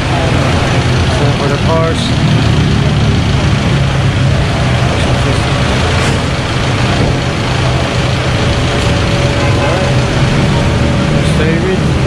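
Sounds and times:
traffic noise: 0.0 - 12.0
vehicle engines idling: 0.0 - 12.0.

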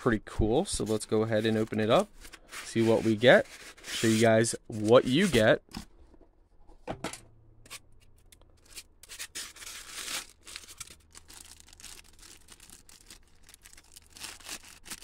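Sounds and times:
styrofoam rubbing and squeaking: 0.8 - 5.5, 8.6 - 15.0
plastic bag crinkling: 9.5 - 15.0.

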